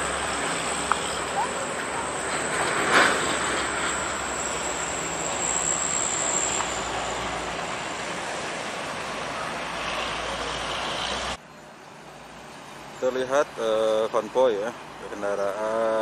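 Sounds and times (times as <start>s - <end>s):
truck engine and tyre noise: 0.0s - 16.0s
faint high whistle: 3.9s - 7.3s.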